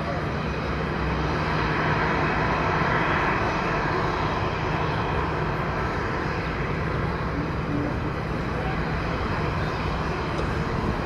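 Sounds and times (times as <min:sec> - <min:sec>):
jet engines taxiing: 0:00.0 - 0:11.0.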